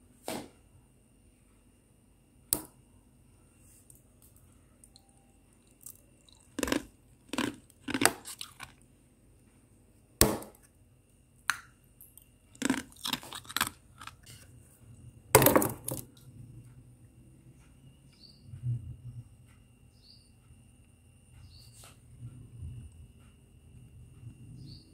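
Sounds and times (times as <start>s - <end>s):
frost crunching when scraped: 6.5s - 8.8s, 12.6s - 14.5s.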